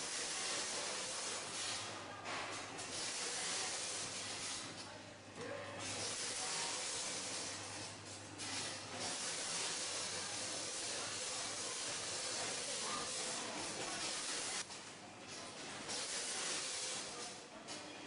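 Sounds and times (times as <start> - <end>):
packaging machine hissing: 0.0 - 1.9, 2.8 - 4.7, 5.8 - 14.6, 15.9 - 17.3.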